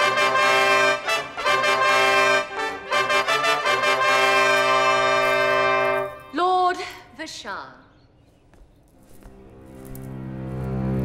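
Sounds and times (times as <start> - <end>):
brass fanfare: 0.0 - 6.3.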